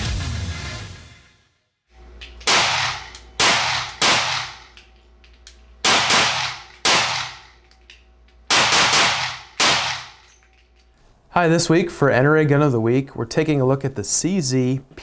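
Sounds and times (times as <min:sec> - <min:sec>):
pistol shots indoors: 0:02.3 - 0:10.7.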